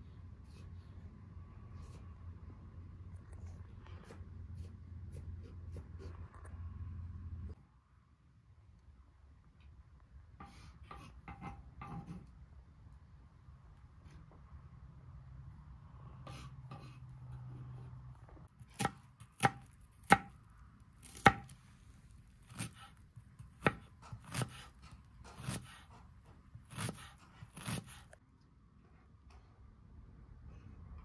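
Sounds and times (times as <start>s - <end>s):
knife chopping on cutting board: 18.6s - 20.4s, 21.0s - 21.6s, 22.5s - 28.1s.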